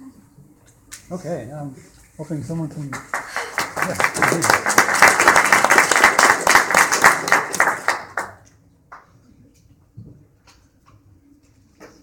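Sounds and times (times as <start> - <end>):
audience applauding: 2.9 - 9.0.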